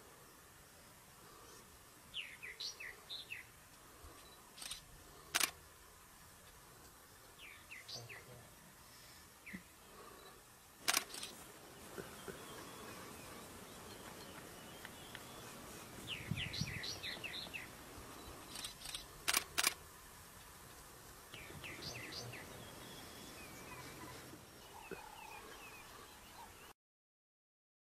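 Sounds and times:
faint background noise: 0.0s - 26.7s
bird chirping: 1.4s - 3.5s, 7.4s - 8.4s, 10.9s - 19.4s, 21.3s - 26.7s
sharp clicks: 4.2s - 5.6s, 10.8s - 11.4s, 18.4s - 19.8s.

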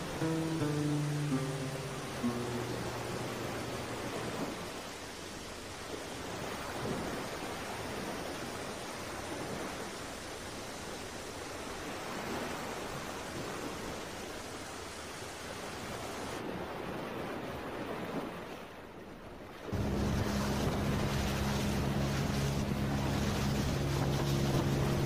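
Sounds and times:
boat motor droning: 0.0s - 4.8s, 19.7s - 25.0s
water rushing along boat hull: 0.0s - 25.0s
wind: 0.0s - 25.0s.

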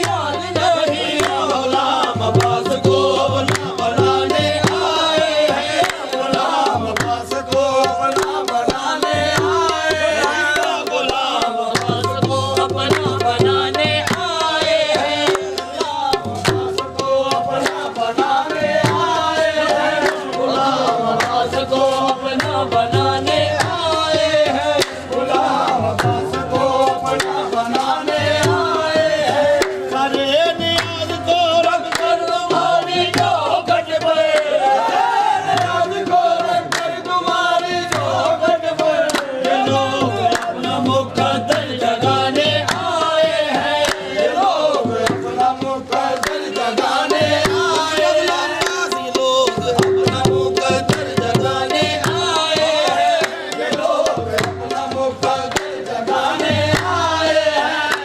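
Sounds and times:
handclaps: 0.0s - 0.4s, 1.1s - 1.6s, 2.4s - 2.8s, 3.4s - 9.8s, 11.7s - 13.4s, 14.0s - 16.9s, 17.6s - 17.9s, 19.9s - 20.4s, 21.1s - 21.6s, 22.3s - 24.0s, 24.8s - 25.0s, 25.8s - 28.7s, 29.6s - 29.9s, 30.6s - 31.1s, 31.8s - 33.5s, 34.1s - 34.6s, 35.5s - 38.2s, 38.8s - 39.4s, 40.2s - 41.8s, 42.4s - 44.2s, 44.8s - 58.0s.

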